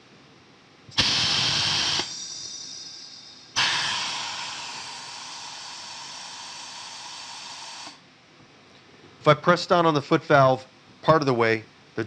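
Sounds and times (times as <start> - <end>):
compressed air hissing: 0.9 - 8.0.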